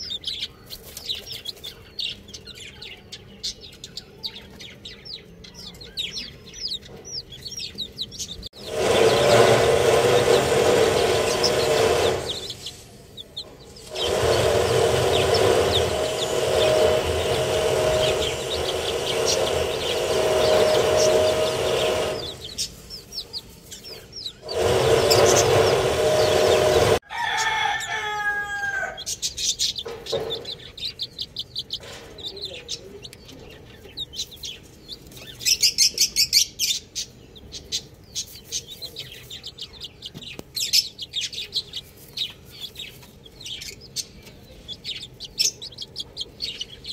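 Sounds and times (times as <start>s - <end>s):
chicks peeping: 0.0s - 46.9s
loud low hum: 8.4s - 23.4s, 24.4s - 27.0s.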